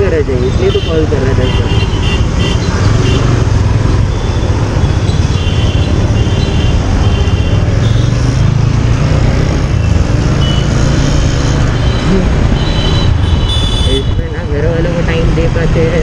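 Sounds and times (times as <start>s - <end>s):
motorcycle engine rumble: 0.0s - 16.0s
high traffic beeps: 1.9s - 8.6s, 9.7s - 14.8s.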